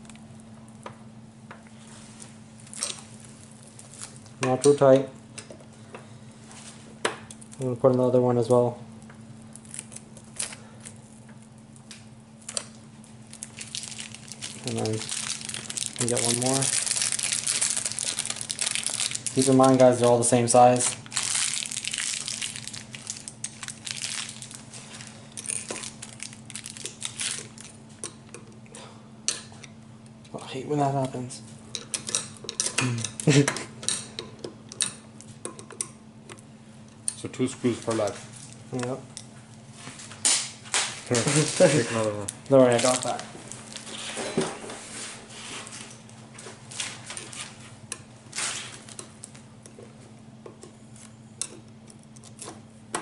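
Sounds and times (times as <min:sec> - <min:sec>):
faint steady hum: 0:00.0 - 0:53.0
plastic film crinkling: 0:02.6 - 0:04.4, 0:09.4 - 0:11.2, 0:12.4 - 0:27.8, 0:40.0 - 0:44.2.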